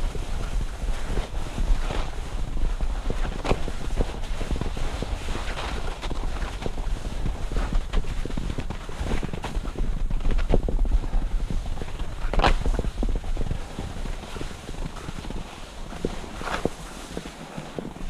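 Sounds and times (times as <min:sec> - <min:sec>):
skis scraping over snow: 0:00.0 - 0:18.0
wind rumble on microphone: 0:00.0 - 0:18.0.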